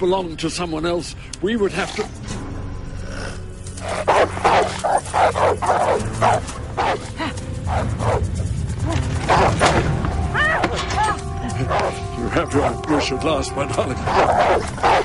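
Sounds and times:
dogs barking: 0:03.8 - 0:08.4, 0:09.2 - 0:09.8, 0:11.6 - 0:13.2, 0:13.8 - 0:15.0.

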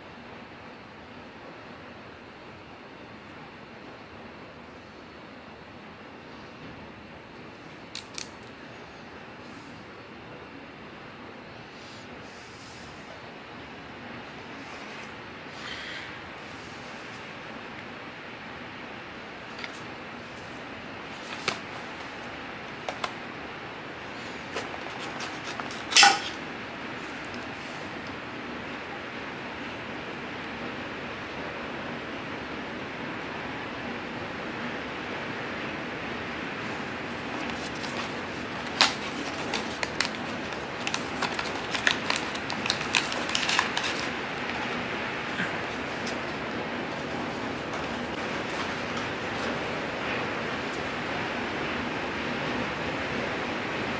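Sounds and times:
steady hiss: 0:00.0 - 0:53.9
paper packaging crinkling: 0:07.8 - 0:08.5, 0:19.5 - 0:23.3, 0:24.1 - 0:26.4, 0:36.7 - 0:50.9.

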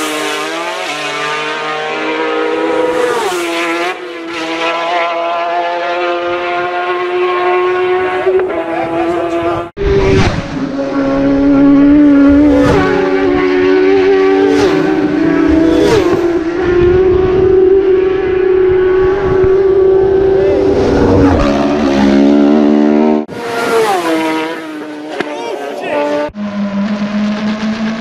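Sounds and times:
motorcycle engine at high revs: 0:00.0 - 0:28.0.

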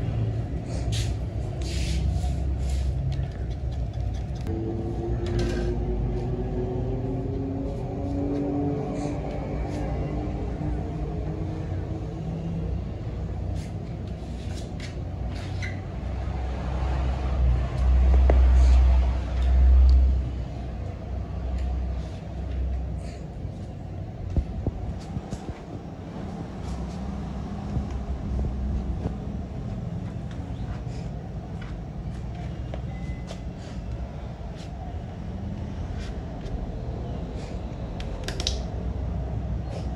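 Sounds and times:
low rumble: 0:19.8 - 0:33.2.

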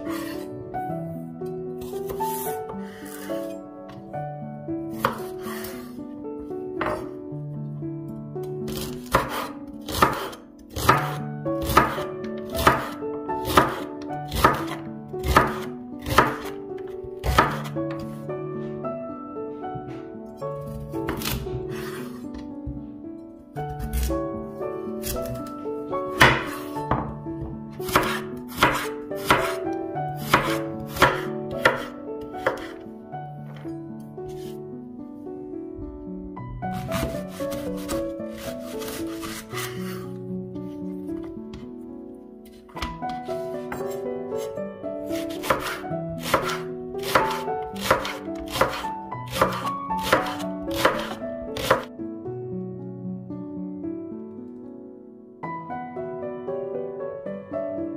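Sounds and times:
soft background music: 0:00.0 - 0:57.9
knife chopping on wooden board: 0:01.8 - 0:03.2, 0:04.9 - 0:05.8, 0:08.7 - 0:12.0, 0:12.6 - 0:18.1, 0:21.1 - 0:22.2, 0:25.0 - 0:25.5, 0:26.1 - 0:29.6, 0:30.2 - 0:32.8, 0:36.8 - 0:40.0, 0:45.2 - 0:51.9.

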